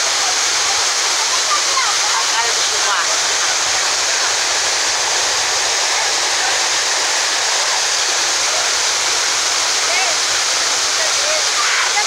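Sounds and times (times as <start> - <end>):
waterfall pouring onto rocks: 0.0 - 12.0.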